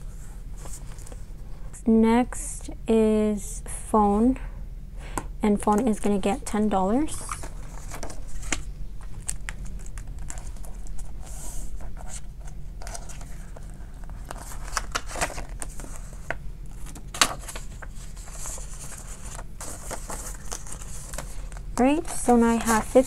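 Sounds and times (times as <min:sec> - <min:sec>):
paper bills rustling: 0:12.8 - 0:23.0.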